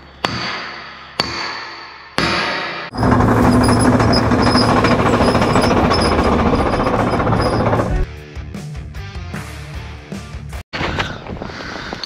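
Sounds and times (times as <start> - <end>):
rapid rattle of metal tool: 2.9 - 8.1.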